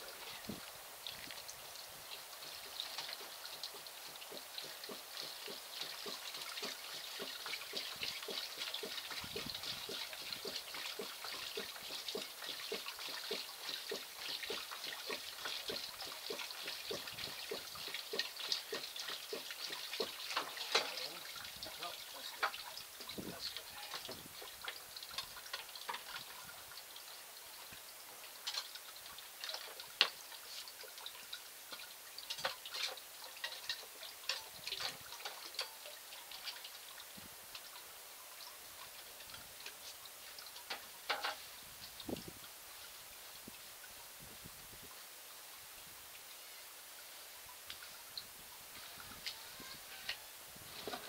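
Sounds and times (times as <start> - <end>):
water poured over gravel: 0.0 - 27.2.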